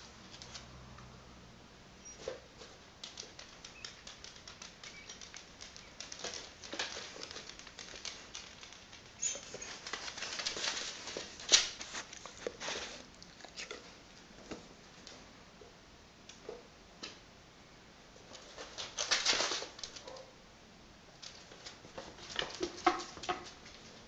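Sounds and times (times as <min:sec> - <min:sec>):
pet claws clicking on wooden floor: 0:03.0 - 0:12.6.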